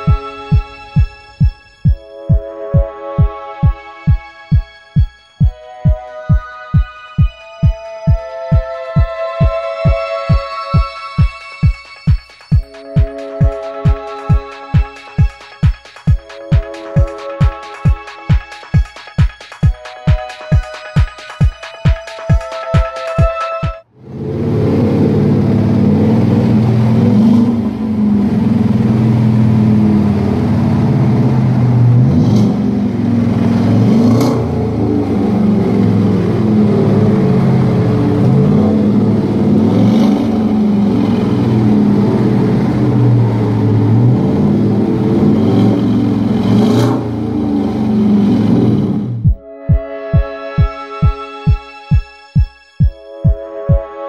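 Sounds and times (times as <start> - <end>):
pickup engine idling and revving: 24.0 - 49.2.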